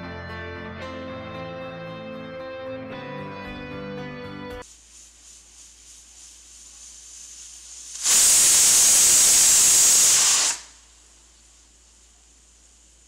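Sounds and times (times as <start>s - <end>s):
pressure cooker whistling: 7.0s - 10.8s.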